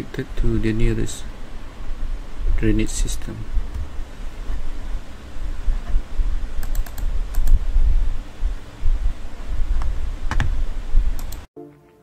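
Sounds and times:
low rumble: 3.5 - 11.2
computer clicks: 6.6 - 7.6, 11.2 - 11.5.

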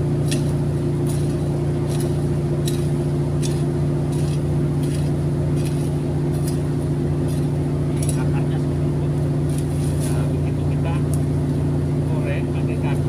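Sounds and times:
motor-like hum: 0.0 - 13.0
hoe chopping into soil: 0.2 - 8.4.

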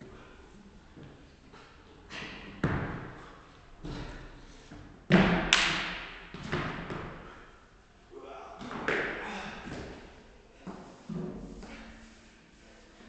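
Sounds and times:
thuds of jumping on tyres: 5.1 - 7.3.

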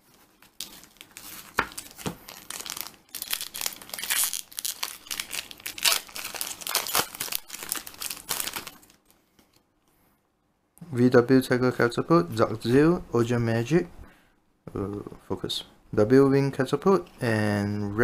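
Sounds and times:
foil wrapper crinkling: 0.0 - 9.2.

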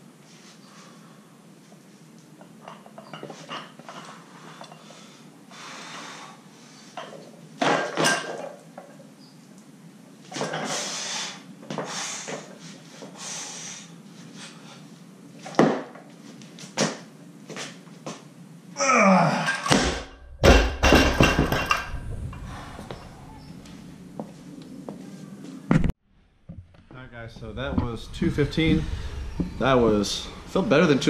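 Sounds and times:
heavy breathing: 22.2 - 24.0.

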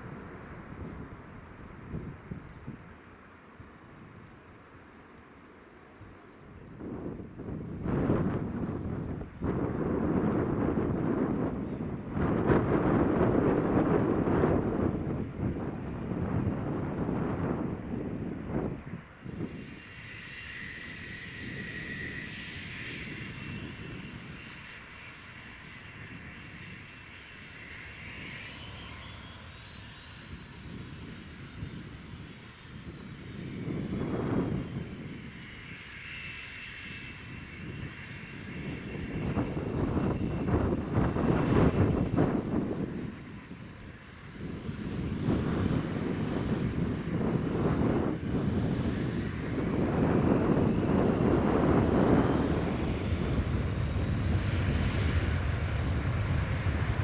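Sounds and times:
aircraft engines rumbling: 0.0 - 57.0
high engine whine: 0.0 - 57.0
whine rising in pitch: 36.4 - 57.0.

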